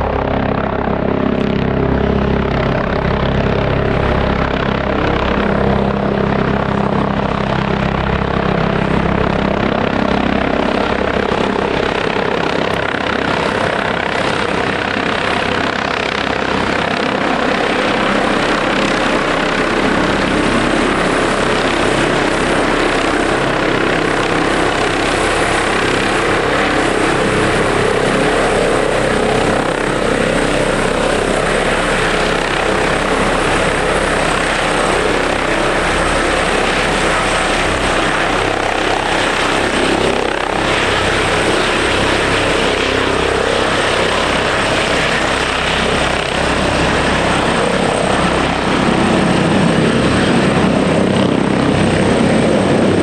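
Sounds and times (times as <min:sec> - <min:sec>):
helicopter rotor: 0:00.0 - 0:53.0
high turbine whine: 0:00.0 - 0:53.0.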